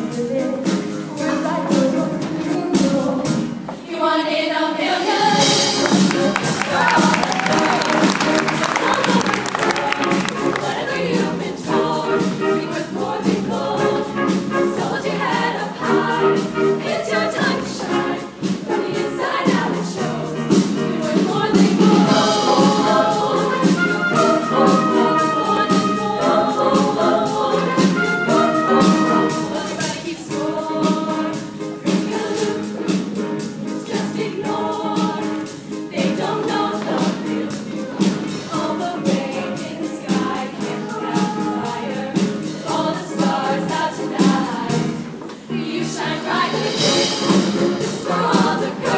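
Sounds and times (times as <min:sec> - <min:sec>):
live band with steady beat: 0:00.0 - 0:03.8, 0:05.0 - 0:48.9
choir singing: 0:00.0 - 0:48.9.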